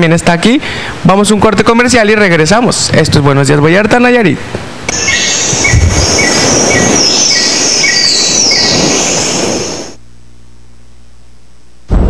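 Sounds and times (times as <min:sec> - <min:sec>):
falling whistle-like sweeps: 0:04.9 - 0:10.0
loud noisy rush: 0:04.9 - 0:10.0.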